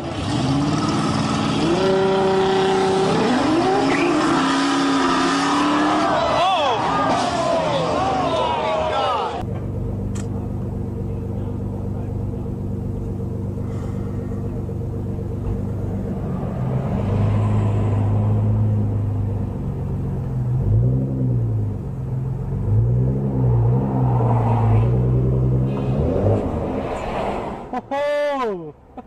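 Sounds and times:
car engine idling and revving: 0.0s - 27.8s.

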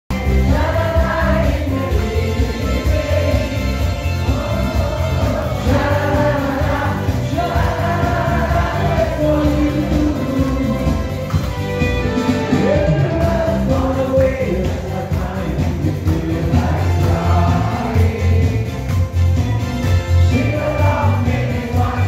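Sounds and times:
group of people singing: 0.1s - 11.3s, 12.5s - 19.2s, 20.1s - 22.0s
backing music with bass beat: 0.1s - 22.0s.

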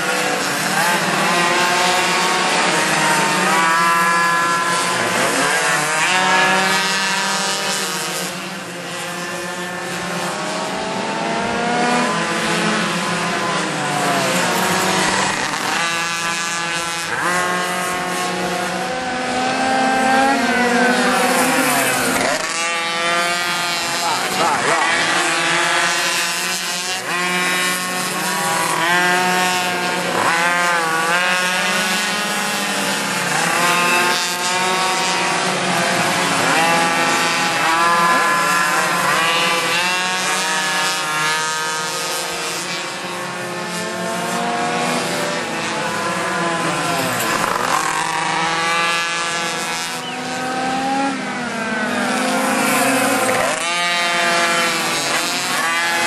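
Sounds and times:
pocket bike engines racing: 0.0s - 56.0s.

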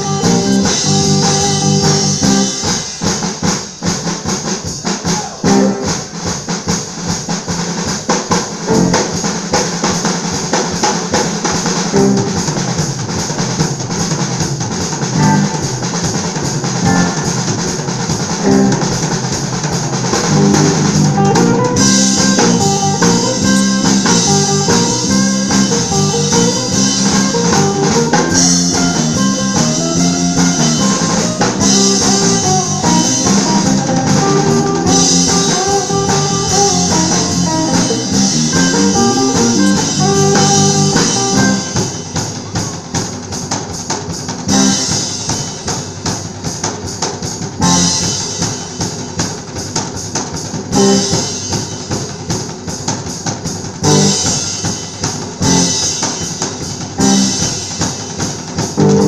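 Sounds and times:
electric guitar melody: 0.0s - 2.6s, 11.9s - 12.4s, 15.1s - 15.8s, 18.4s - 19.1s, 20.1s - 42.2s, 50.7s - 51.4s, 58.8s - 59.0s
drum kit playing: 0.0s - 59.0s
rock band playing: 0.0s - 59.0s.

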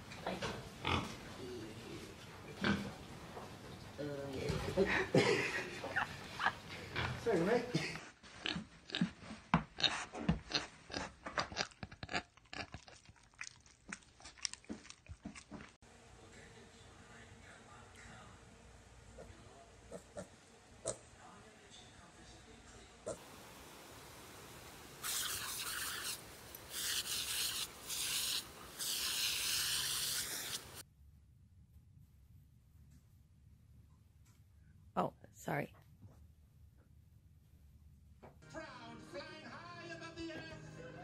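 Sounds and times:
pig chewing crunches: 9.8s - 15.8s
sprinkler water jet hissing: 23.2s - 30.8s.

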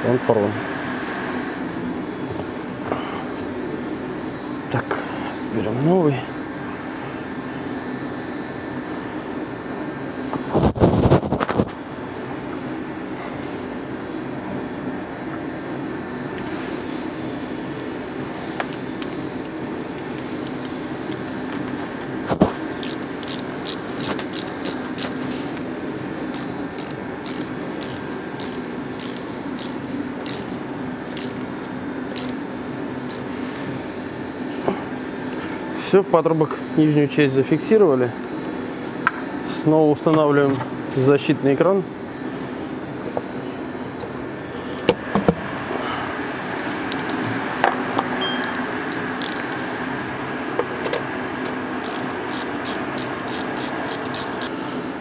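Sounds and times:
steady low hum: 0.0s - 55.0s
screwdriver scraping clicks: 22.8s - 25.2s, 26.3s - 30.5s, 31.1s - 31.5s, 32.1s - 32.4s, 33.1s - 33.3s, 48.4s - 49.6s, 51.8s - 54.5s.

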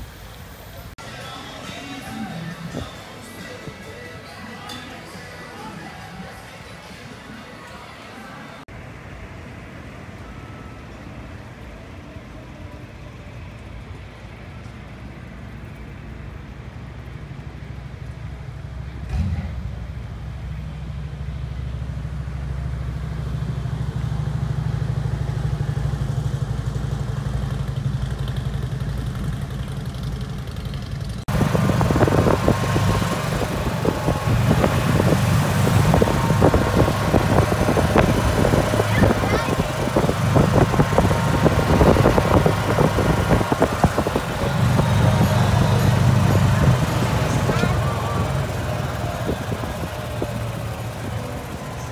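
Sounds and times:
low engine hum: 0.0s - 51.9s
golf cart riding crackle: 26.5s - 51.9s.

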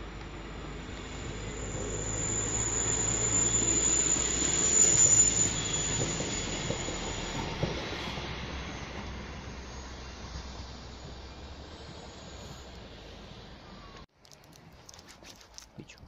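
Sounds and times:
train rumble: 0.0s - 14.6s
high-pitched wheel squeal: 0.6s - 12.7s.

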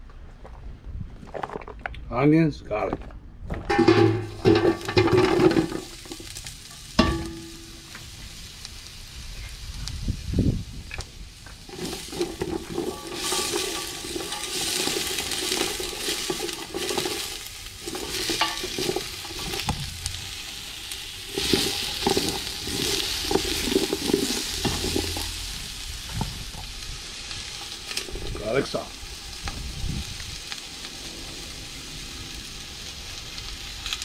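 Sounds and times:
onions and garlic frying: 3.7s - 34.0s
wooden spoon scraping pot: 11.7s - 20.4s, 21.3s - 25.4s.

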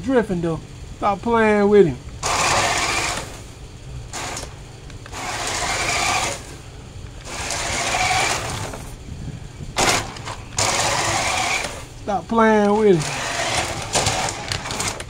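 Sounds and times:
rc car motor whining: 2.1s - 15.0s.

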